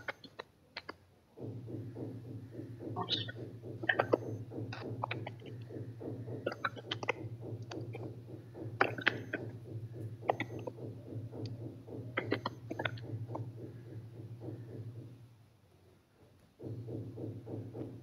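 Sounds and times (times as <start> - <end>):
low electrical hum: 0.0 - 18.0
keys typing: 1.6 - 15.2.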